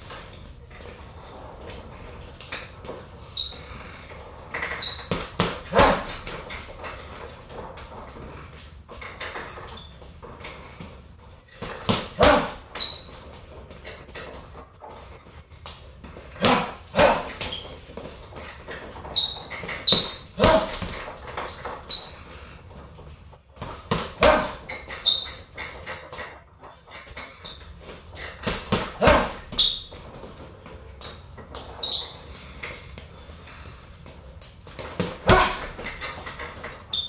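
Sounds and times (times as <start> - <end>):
short high squeaks: 3.3 - 6.6, 12.2 - 13.3, 18.7 - 20.9, 21.6 - 22.4, 24.3 - 26.1, 27.2 - 28.4, 29.1 - 30.1, 31.0 - 32.6, 35.3 - 37.0
punches thudding on heavy bag: 11.6 - 12.6, 16.4 - 17.4, 20.4 - 20.9, 23.6 - 24.7, 28.4 - 29.6, 35.0 - 35.9.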